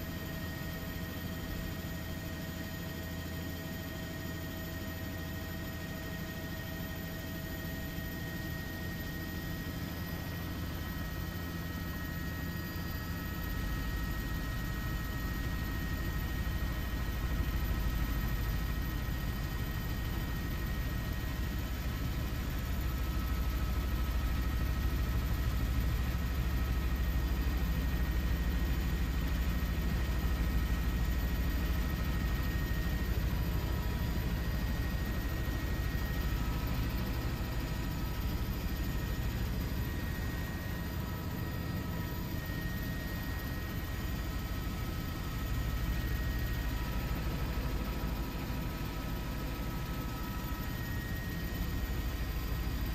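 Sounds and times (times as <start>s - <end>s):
faint steady whine: 0.0s - 52.9s
aircraft engine rumble: 29.9s - 52.9s.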